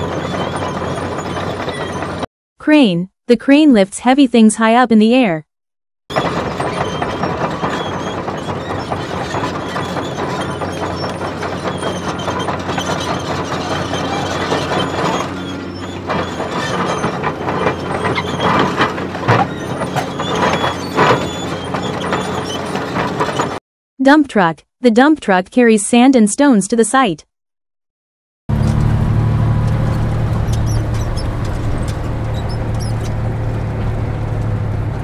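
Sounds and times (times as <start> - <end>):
metal clanking and rattling: 0.0 - 2.2, 6.1 - 23.6, 29.6 - 34.6.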